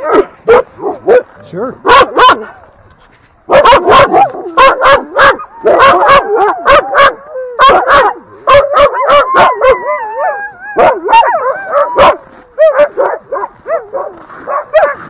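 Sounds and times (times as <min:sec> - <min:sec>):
dogs barking: 0:00.0 - 0:02.7, 0:03.5 - 0:15.0
dogs whining and yelping: 0:03.6 - 0:15.0.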